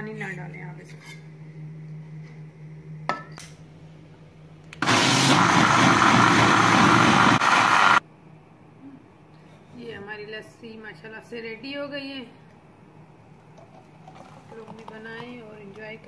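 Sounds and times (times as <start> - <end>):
electric blender running: 4.8 - 8.0.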